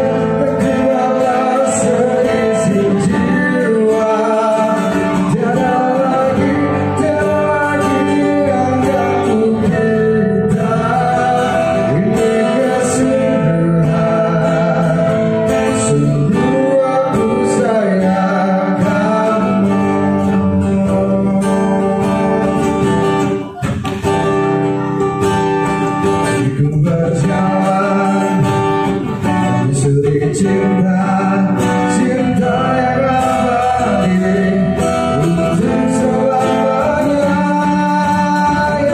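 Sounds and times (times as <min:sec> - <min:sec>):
man singing into a microphone: 0:00.0 - 0:23.8, 0:26.0 - 0:38.9
acoustic guitar: 0:00.0 - 0:38.9.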